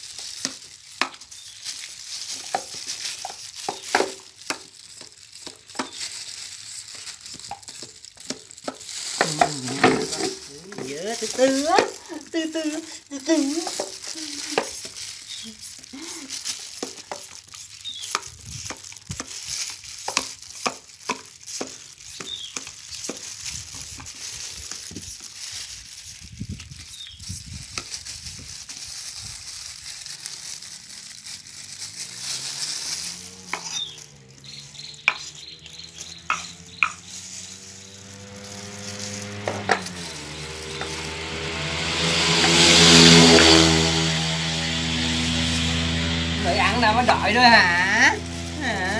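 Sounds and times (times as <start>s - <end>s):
plastic gloves rustling: 0.0s - 48.9s
engine hum: 8.0s - 16.9s, 29.8s - 48.9s.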